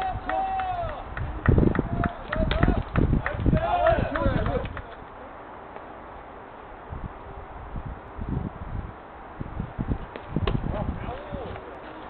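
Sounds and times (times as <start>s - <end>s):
wind buffeting microphone: 0.0s - 5.2s, 6.7s - 11.8s.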